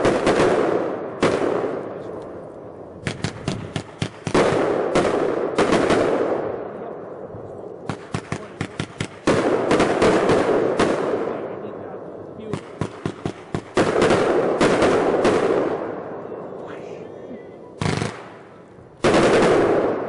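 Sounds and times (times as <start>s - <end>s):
firework pops: 3.0s - 5.8s.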